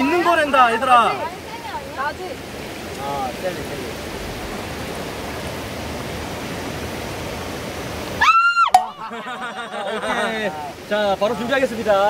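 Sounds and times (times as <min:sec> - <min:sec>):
voices: 0:00.0 - 0:03.9
stream rushing over rocks: 0:00.0 - 0:12.0.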